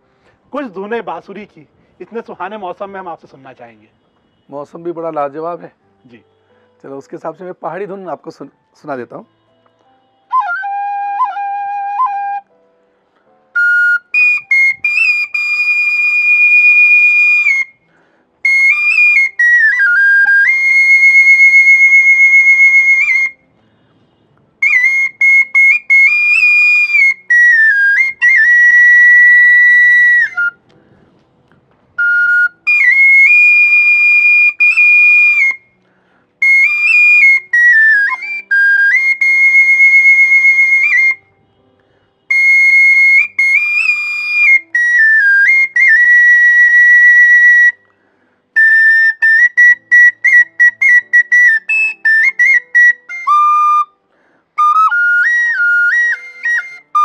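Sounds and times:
bamboo flute playing folk tune: 10.2s - 12.6s, 13.5s - 23.5s, 24.6s - 30.7s, 32.0s - 35.8s, 36.4s - 41.4s, 42.3s - 47.9s, 48.6s - 57.0s.

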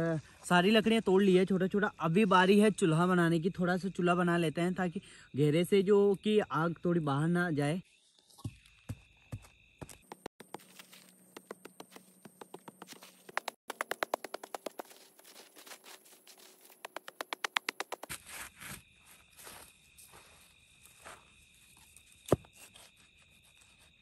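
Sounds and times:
crickets trilling: 0.6s - 24.0s
hands scraping dry soil: 10.1s - 21.1s.

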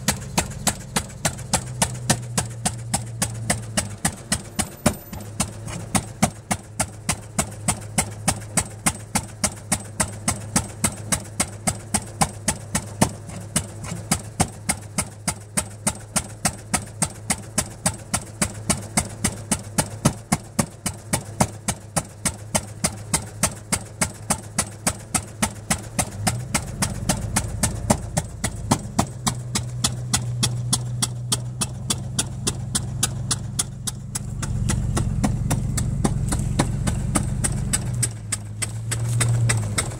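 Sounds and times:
single-cylinder engine exhaust beats: 0.0s - 39.9s.

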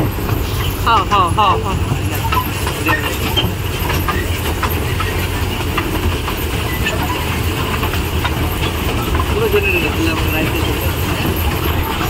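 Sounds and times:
toy train rumbling: 0.0s - 12.0s.

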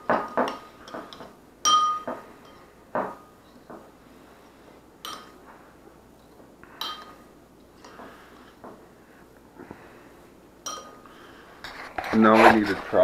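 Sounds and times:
spoon clinking against a dish: 0.1s - 3.2s, 5.0s - 5.4s, 6.8s - 7.2s, 10.6s - 11.1s.

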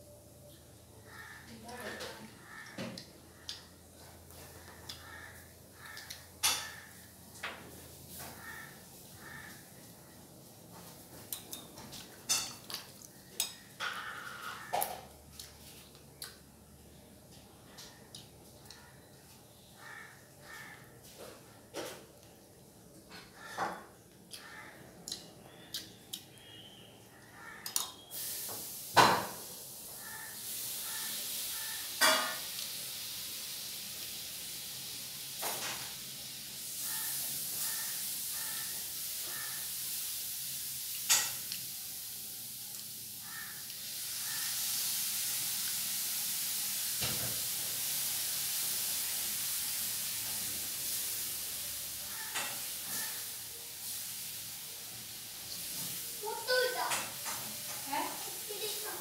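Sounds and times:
steady hiss: 26.4s - 59.0s.

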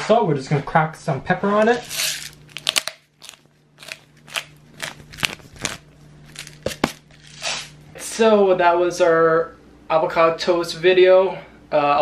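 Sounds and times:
pepper mill grinding: 1.6s - 7.8s.

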